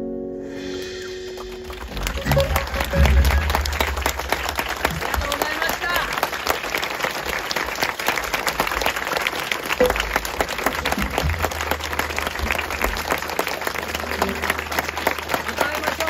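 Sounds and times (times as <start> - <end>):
audience applauding: 0.7 - 16.0.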